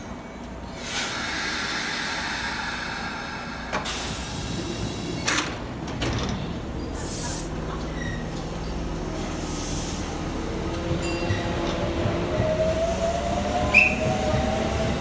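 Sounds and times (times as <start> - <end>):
low rumble of trains: 0.0 - 15.0
train air hiss: 0.7 - 5.4, 7.0 - 7.6, 8.9 - 10.6.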